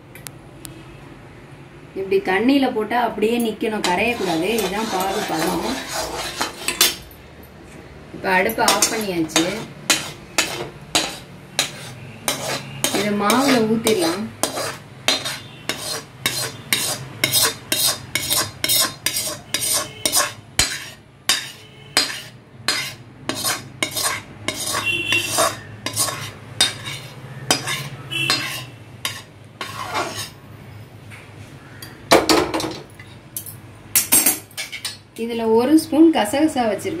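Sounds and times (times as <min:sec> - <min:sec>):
metal spoon scraping steel pan: 0:03.8 - 0:07.1, 0:08.4 - 0:30.4.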